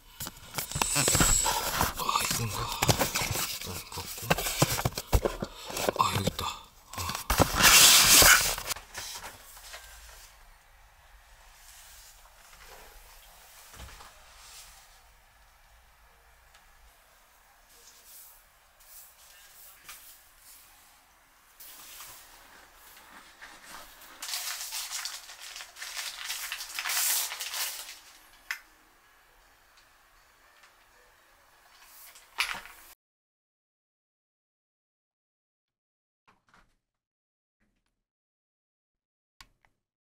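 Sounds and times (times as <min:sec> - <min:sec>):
plastic wrapping crinkling: 0:00.2 - 0:09.9, 0:23.0 - 0:28.5.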